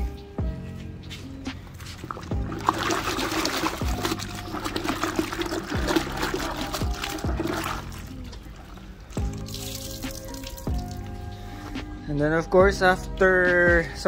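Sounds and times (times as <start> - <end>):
hose water pouring: 1.8 - 11.1
water splashing in a bucket: 1.8 - 11.1.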